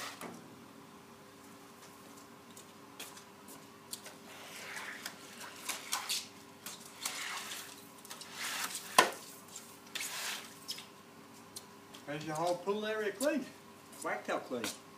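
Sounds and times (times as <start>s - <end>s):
faint steady hum: 0.0s - 14.9s
squeegee swishing water: 4.3s - 10.9s.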